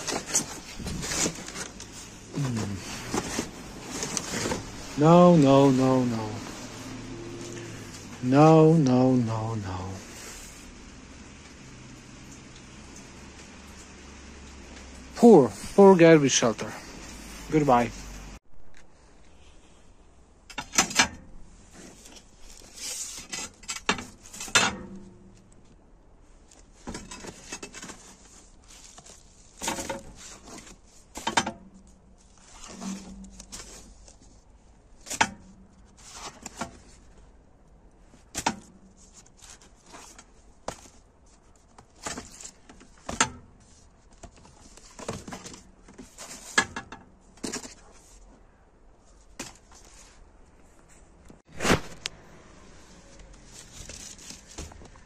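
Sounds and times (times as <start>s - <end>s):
record sleeves flipped through: 0.0s - 8.2s, 32.2s - 37.2s, 51.5s - 55.0s.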